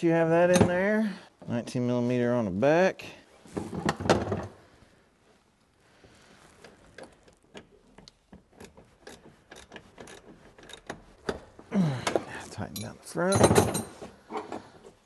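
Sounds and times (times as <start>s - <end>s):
ratchet wrench clicking: 8.0s - 11.0s.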